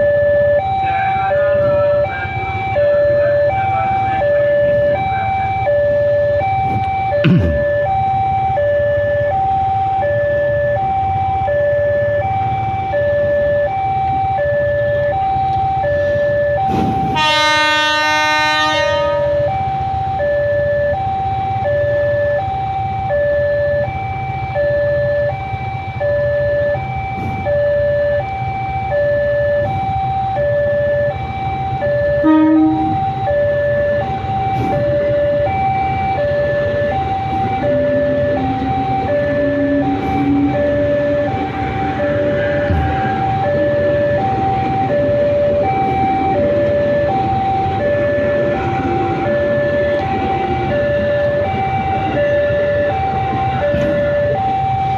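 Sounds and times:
two-note electronic alarm: 0:00.0 - 0:54.9
loud horn: 0:17.2 - 0:19.5, 0:32.2 - 0:33.0.

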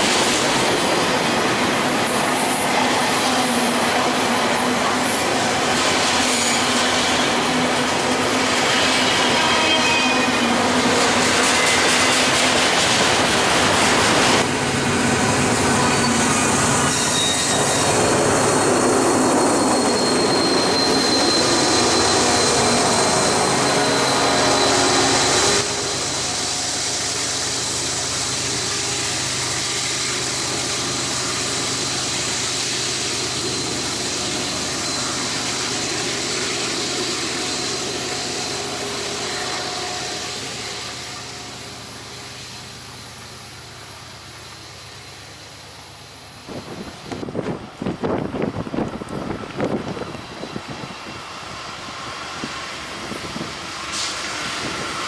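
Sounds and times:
freight train rumbling past: 0:00.0 - 0:55.0
high wheel squeal: 0:00.7 - 0:14.5, 0:15.2 - 0:43.8.

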